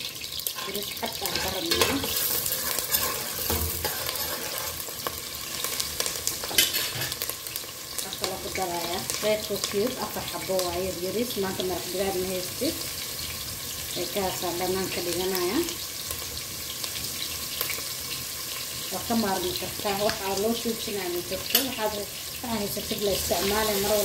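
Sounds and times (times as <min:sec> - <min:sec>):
onion sizzling in hot oil: 0:00.0 - 0:24.0
metal ladle scraping pot: 0:00.5 - 0:05.2, 0:06.4 - 0:07.2.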